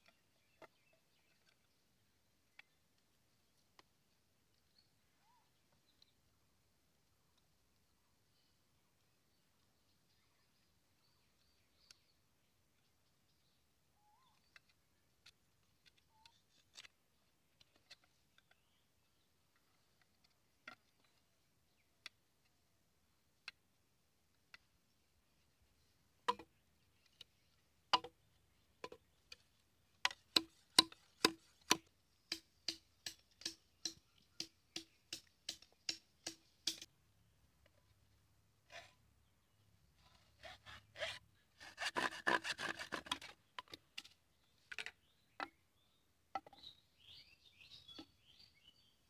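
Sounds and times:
knocks on bamboo: 0:26.3 - 0:26.5, 0:27.9 - 0:28.2.

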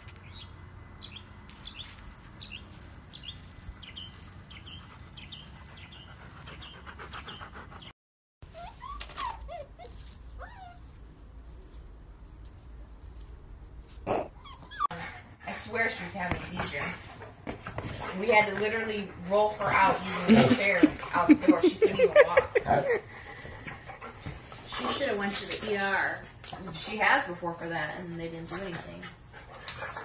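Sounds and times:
birds chirping: 0:00.0 - 0:07.9
puppy whimpering: 0:08.5 - 0:10.9, 0:14.1 - 0:14.9.

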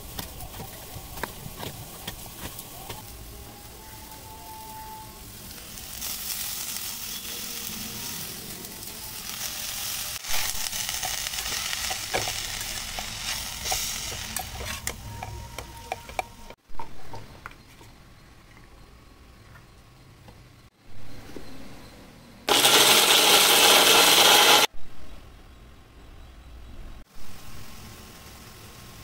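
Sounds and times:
onions sizzling in a hot pan: 0:00.0 - 0:16.6, 0:22.5 - 0:24.7, 0:27.1 - 0:29.0
spatula clicking and scraping pan: 0:10.9 - 0:16.6.

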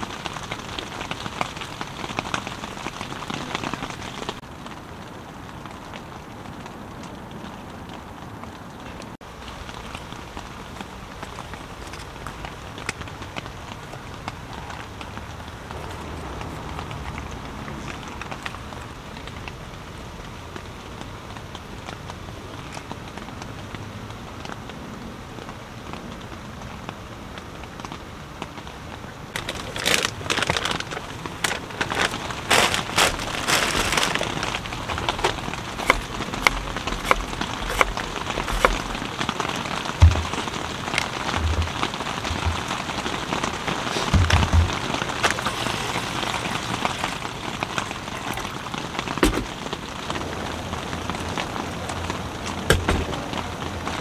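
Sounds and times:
rain falling on a tent: 0:00.0 - 0:54.0
knife cutting on wooden board: 0:35.8 - 0:38.9.

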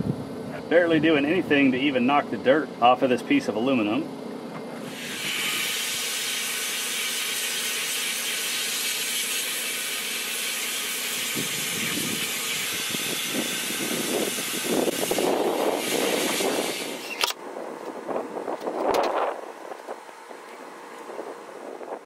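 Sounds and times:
compressed air hissing from nozzle: 0:04.8 - 0:17.3.

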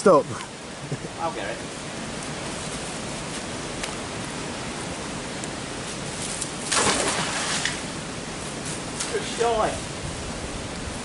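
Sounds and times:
water rushing over a weir: 0:03.6 - 0:08.4
magnet splashing into water: 0:06.7 - 0:07.8.

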